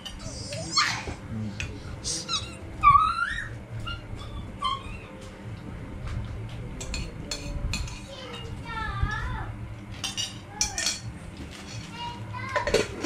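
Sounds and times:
pet animal high-pitched cries: 0.2 - 1.2, 2.2 - 5.2
spoons clinking on plates: 6.8 - 8.6, 9.9 - 11.9.

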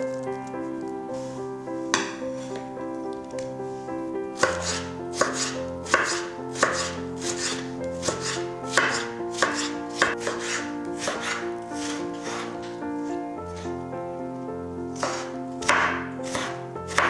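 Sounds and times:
soft background music: 0.0 - 17.0
knife chopping on cutting board: 4.4 - 12.5, 15.0 - 17.0.

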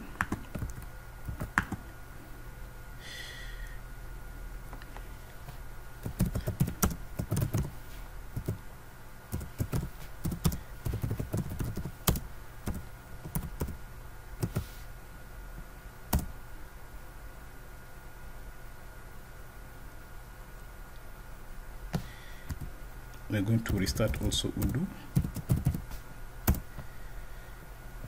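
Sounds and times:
typing on computer keyboard: 6.0 - 7.7, 9.3 - 13.8, 23.6 - 25.8.

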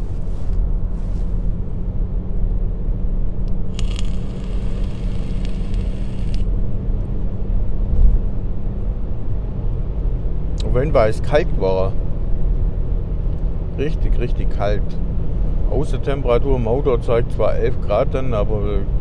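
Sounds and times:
engine and road rumble: 0.0 - 19.0
hiss: 3.7 - 6.4.

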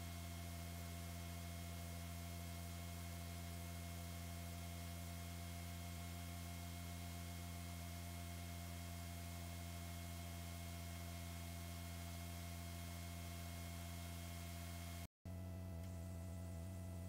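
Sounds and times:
steady low hum: 13.7 - 17.0.

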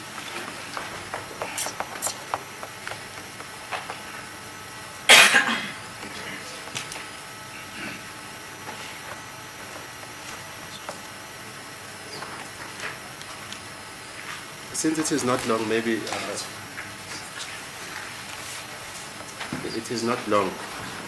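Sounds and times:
person coughing: 5.1 - 6.5.

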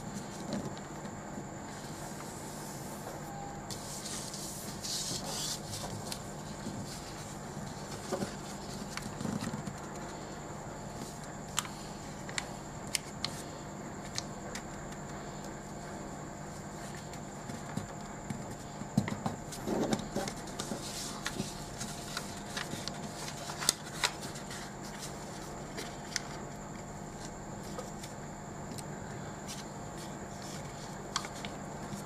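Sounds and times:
steady background hum: 0.0 - 32.0
paper crinkling and rustling: 3.7 - 10.2, 19.0 - 28.1, 29.4 - 32.0.

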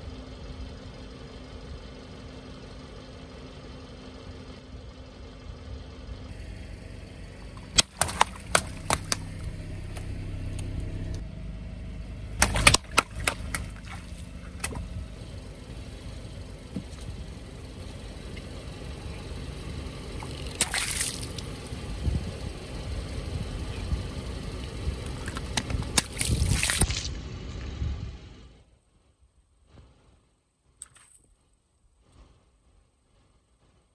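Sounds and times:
car engine running slowly: 0.0 - 28.8
water balloons bursting with splash: 7.6 - 9.4, 12.4 - 14.9, 20.2 - 21.7, 25.8 - 27.1.

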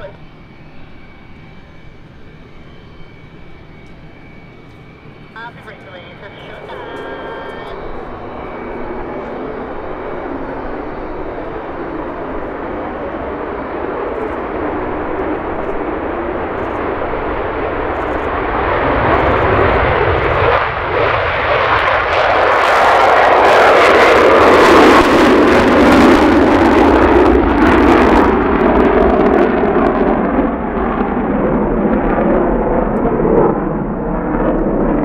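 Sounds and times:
jet engine roaring on takeoff: 0.0 - 35.0.

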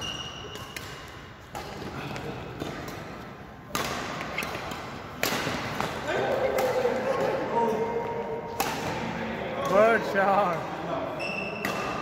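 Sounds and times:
shoe squeak on court floor: 0.0 - 0.8, 11.2 - 12.0
racket striking shuttlecock: 0.0 - 1.9, 2.6 - 6.8, 8.5 - 9.8, 11.6 - 12.0.

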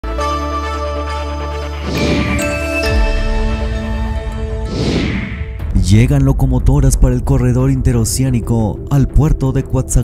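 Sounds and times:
whooshing sweep: 1.8 - 3.0, 4.4 - 5.6
synthesized jingle music: 1.8 - 6.0.

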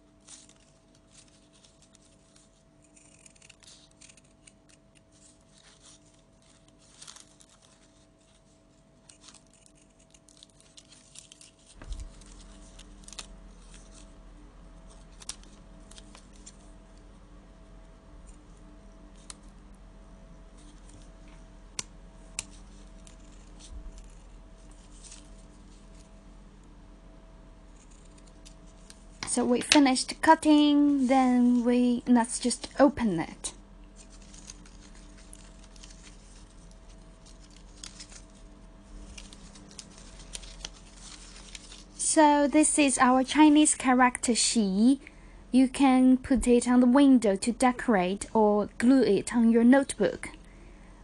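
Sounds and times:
low steady hum: 0.0 - 51.0
scissors snipping paper: 0.2 - 8.3, 9.0 - 14.1, 39.0 - 41.9.

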